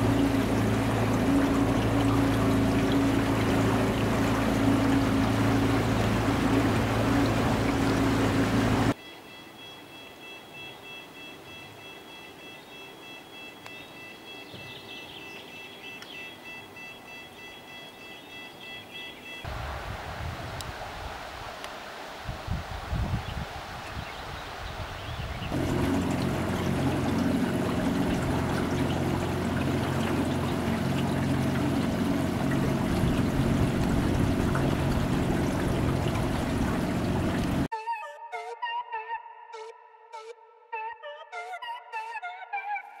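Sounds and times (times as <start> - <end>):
small boat motor running: 0.0 - 9.0, 25.5 - 37.7
water rushing: 0.0 - 9.0, 19.4 - 37.7.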